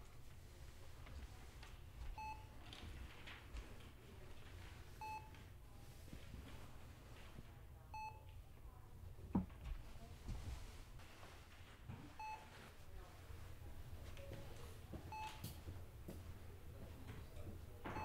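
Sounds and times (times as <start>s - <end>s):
patient monitor beeping: 2.0s - 2.6s, 5.0s - 5.5s, 7.8s - 8.4s, 12.2s - 12.5s, 13.6s - 15.6s, 17.1s - 18.0s.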